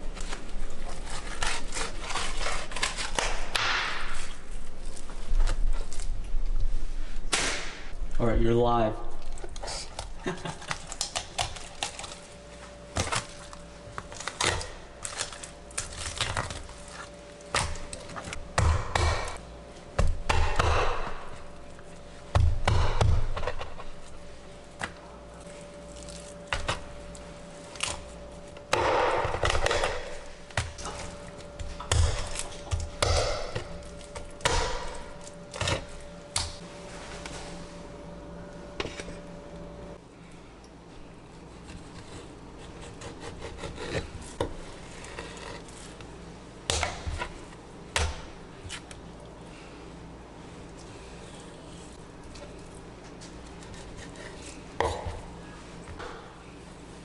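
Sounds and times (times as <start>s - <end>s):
knife crunching through bone: 0.2s - 5.0s.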